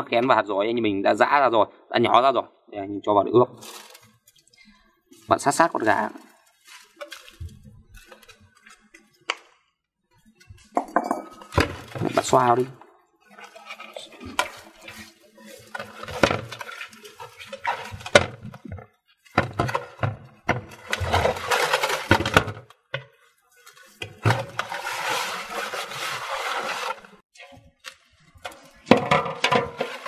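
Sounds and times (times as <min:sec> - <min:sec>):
wet rubbing of raw chicken: 0:03.6 - 0:09.1, 0:13.3 - 0:18.1.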